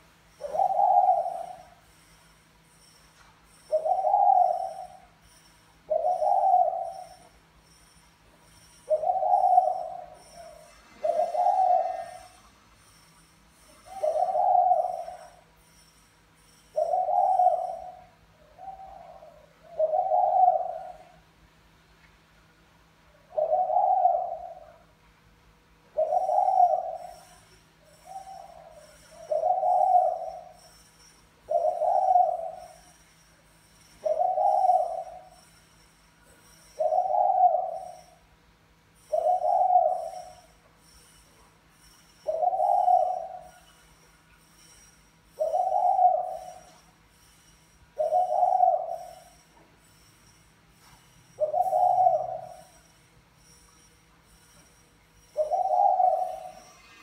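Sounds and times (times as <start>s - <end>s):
dove cooing: 0.0s - 1.8s, 3.7s - 5.2s, 5.9s - 7.4s, 8.8s - 13.0s, 13.6s - 15.4s, 16.8s - 21.2s, 23.2s - 24.9s, 25.9s - 30.8s, 31.5s - 33.0s, 34.0s - 35.4s, 36.4s - 38.2s, 39.0s - 40.5s, 42.3s - 43.7s, 45.3s - 46.8s, 48.0s - 49.4s, 51.4s - 52.9s, 55.4s - 57.0s
faint high chirps: 0.0s - 21.3s, 25.9s - 57.0s.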